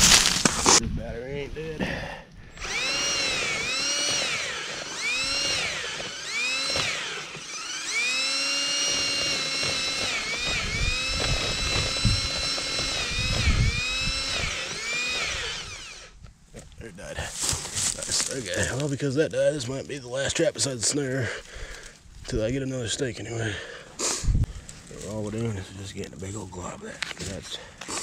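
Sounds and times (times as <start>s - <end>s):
low grinding rumble: 2.4s - 18.5s
cordless drill motor whine: 2.5s - 16.2s.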